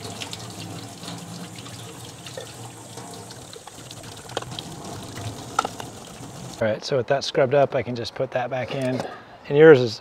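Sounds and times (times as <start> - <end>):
tap water splashing into sink: 0.0 - 6.6.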